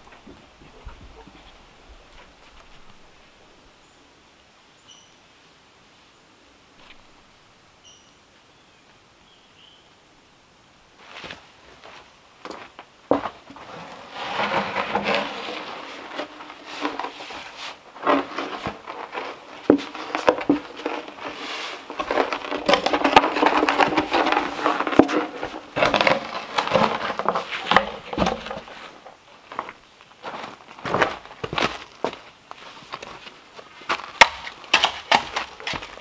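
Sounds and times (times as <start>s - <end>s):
barrel rolling on gravel: 11.0s - 36.0s
footsteps on gravel: 11.0s - 36.0s.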